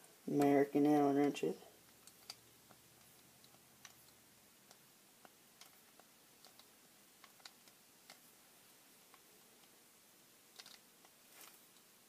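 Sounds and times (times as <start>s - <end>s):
small metal parts clicking: 10.5s - 11.9s.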